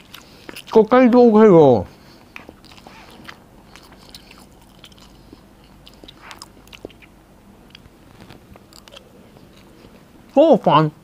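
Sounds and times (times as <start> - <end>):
quiet chewing: 0.0 - 1.2, 1.9 - 10.4.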